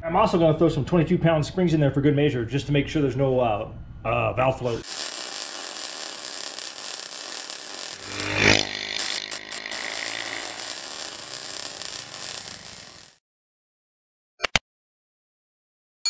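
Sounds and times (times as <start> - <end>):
drone propellers buzzing: 5.2 - 13.2.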